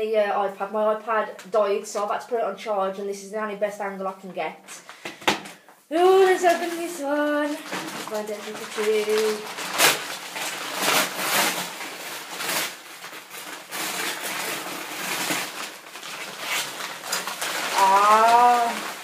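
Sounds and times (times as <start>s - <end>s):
paper and plastic packaging rustling: 4.8s - 19.0s.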